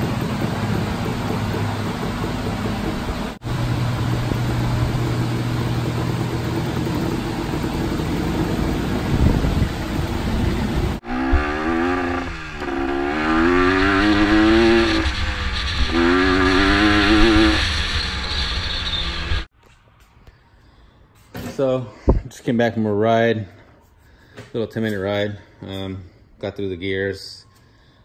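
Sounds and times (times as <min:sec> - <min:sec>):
three-wheeler engine revving: 0:00.0 - 0:19.5.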